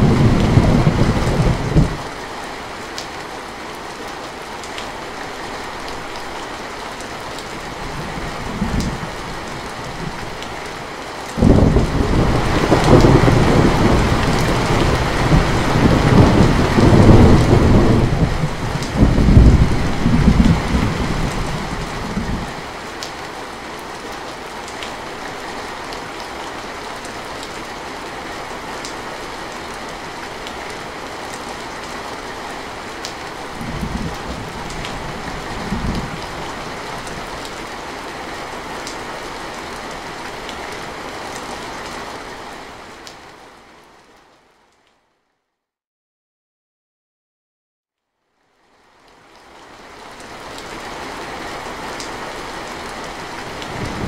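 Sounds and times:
thunder rumbling: 0.0 - 2.0, 11.4 - 22.6, 33.5 - 37.3, 53.5 - 54.0
heavy rain on a metal roof: 0.0 - 45.1, 48.2 - 54.0.

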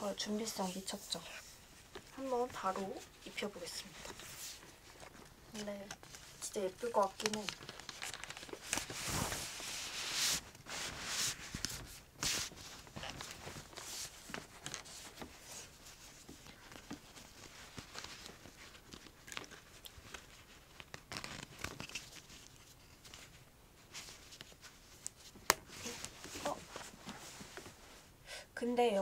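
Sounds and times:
fabric rustling and rubbing: 0.0 - 28.2
handling scrapes: 0.6 - 18.7.

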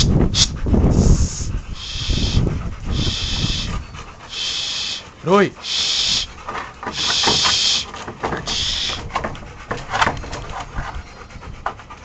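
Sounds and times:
dogs panting: 0.0 - 12.0
dog whining: 1.7 - 11.9
paw scuffs and clicks: 5.7 - 12.0.

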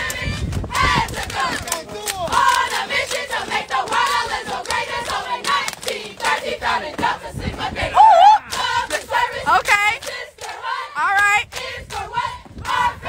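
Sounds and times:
women chanting and singing: 0.0 - 13.0
onlookers shouting: 7.9 - 8.6.

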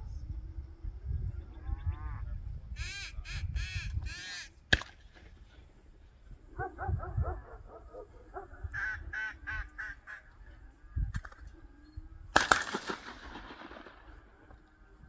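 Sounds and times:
duck call quacks: 2.8 - 4.5, 8.8 - 10.3
sharp crack: 4.7 - 5.4, 12.3 - 14.6.

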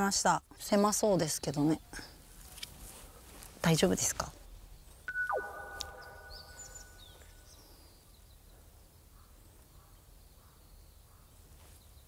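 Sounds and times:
faint outdoor ambience: 0.0 - 12.0
high bird chirps: 5.1 - 8.2.

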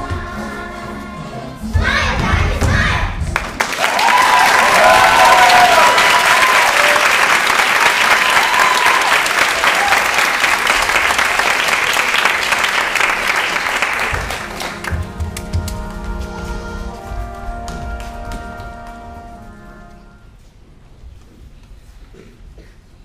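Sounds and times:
music: 0.0 - 3.6, 13.9 - 20.5
audience applauding: 3.3 - 15.5
high cheers: 3.7 - 12.0.

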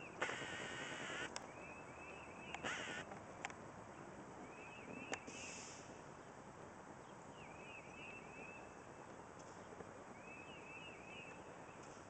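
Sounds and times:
faint steady hiss: 0.0 - 12.0
songbird whistling notes: 10.2 - 11.8.

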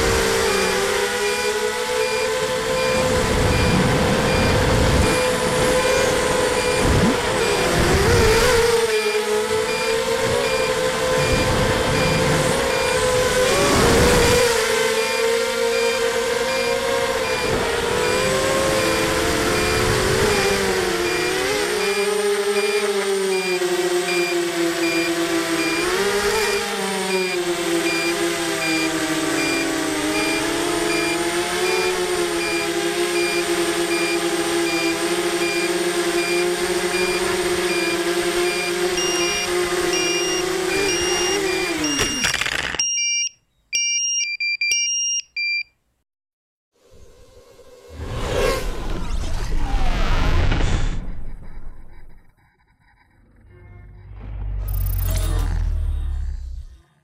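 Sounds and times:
drone motors whining: 0.0 - 42.8, 46.8 - 57.0
short high electronic beeps: 37.0 - 45.7, 52.8 - 56.8.

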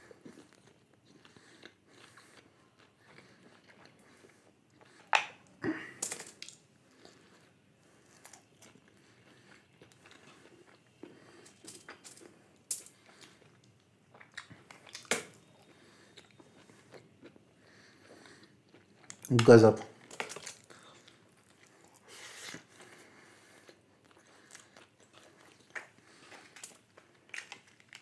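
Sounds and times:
person chewing and biting: 0.0 - 5.4, 8.1 - 12.0, 13.0 - 17.4, 18.2 - 19.4, 23.7 - 28.0.

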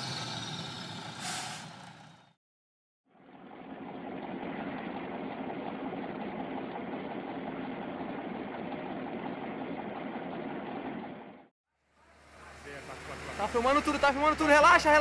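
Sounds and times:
diesel truck engine running: 3.2 - 15.0.

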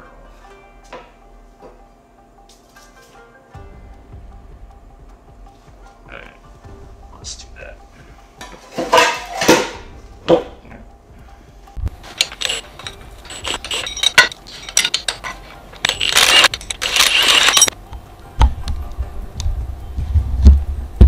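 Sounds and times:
metal tools clinking: 12.0 - 17.8
impact wrench running: 12.2 - 17.7.

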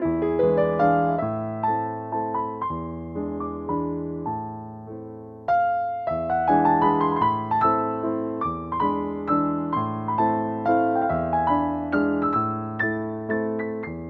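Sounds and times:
gentle piano melody: 0.0 - 14.0.

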